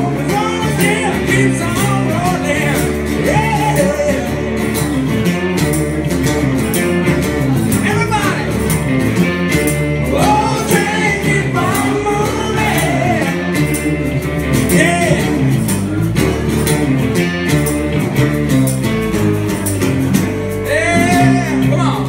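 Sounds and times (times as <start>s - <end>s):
man singing: 0.0s - 4.8s, 10.0s - 13.8s, 14.5s - 15.6s, 20.6s - 22.0s
acoustic guitar strumming: 0.0s - 22.0s
bass: 0.0s - 22.0s
percussion beat: 0.0s - 22.0s.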